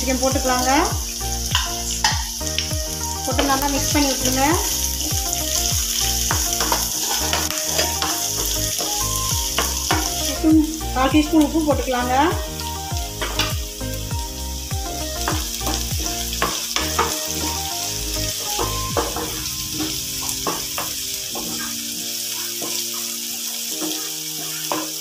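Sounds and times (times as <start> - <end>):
onions sizzling in hot oil: 0.0 - 25.0
spatula scraping a pan: 3.4 - 10.4, 15.2 - 25.0.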